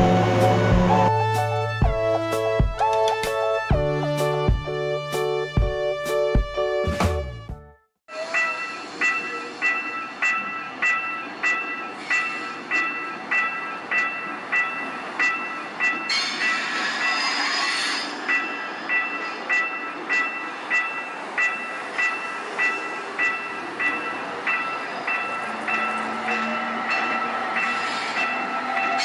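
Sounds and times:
level-crossing bell dinging: 0:08.1 - 0:17.4, 0:18.2 - 0:29.0.

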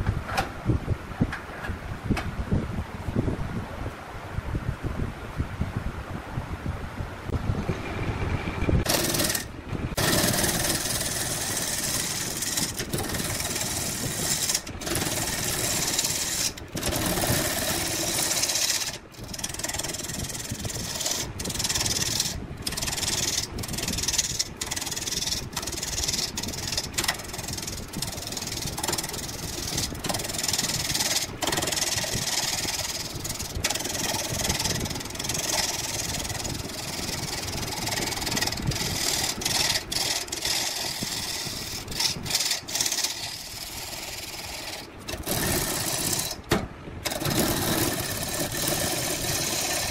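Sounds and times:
power tools cutting and sanding wood: 0:08.9 - 0:19.6, 0:38.0 - 0:46.4, 0:47.1 - 0:49.9.

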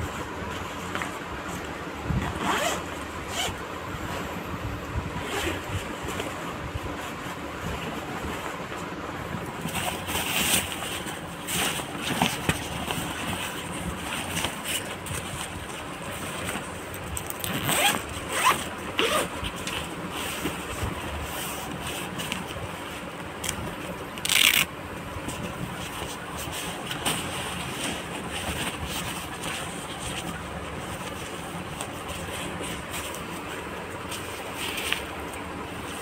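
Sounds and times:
nylon fabric rustling: 0:00.0 - 0:04.4, 0:05.1 - 0:36.0
zipper opening and closing: 0:02.2 - 0:04.3, 0:05.2 - 0:05.8, 0:17.3 - 0:19.5.

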